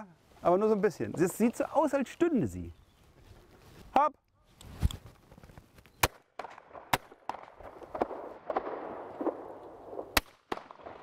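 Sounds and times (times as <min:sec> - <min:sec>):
shotgun shots: 0:06.0 - 0:11.0.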